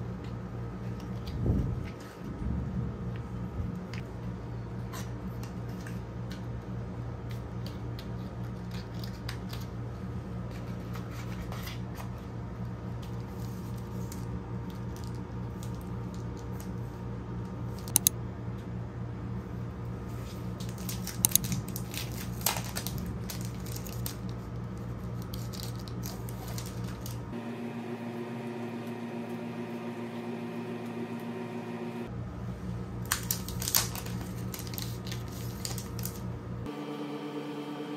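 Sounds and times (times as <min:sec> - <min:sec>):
steady low hum: 0:00.0 - 0:37.9
plastic sleeves crinkling: 0:20.1 - 0:27.3, 0:33.0 - 0:36.3.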